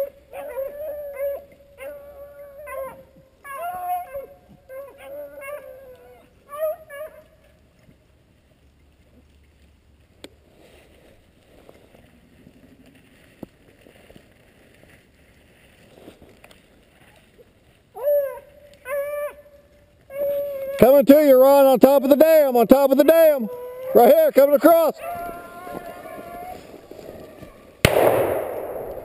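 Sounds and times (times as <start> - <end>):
faint rustling: 7.1 - 20.8, 23.0 - 27.9.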